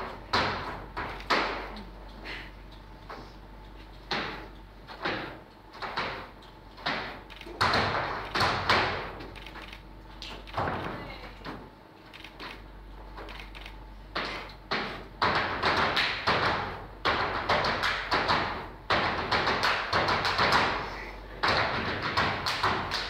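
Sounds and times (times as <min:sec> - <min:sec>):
dance footwork stamps on wooden stage: 0:00.0 - 0:01.8, 0:04.0 - 0:09.4, 0:14.1 - 0:23.0
claps: 0:21.5 - 0:23.0.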